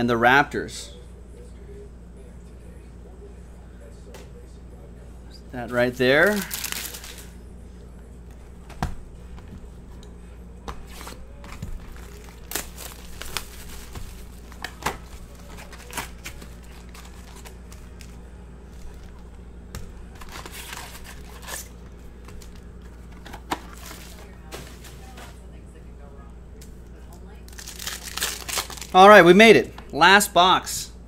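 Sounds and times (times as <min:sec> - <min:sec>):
wrappers crinkling and tearing: 0:06.1 - 0:07.3, 0:10.9 - 0:19.2, 0:20.1 - 0:21.7, 0:27.5 - 0:29.0.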